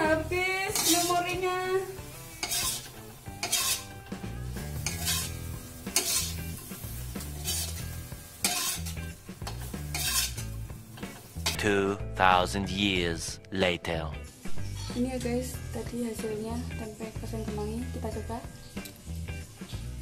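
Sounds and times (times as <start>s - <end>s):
food sizzling: 0.0s - 13.1s, 14.0s - 20.0s
metal spatula scraping wok: 0.7s - 1.3s, 2.1s - 11.6s.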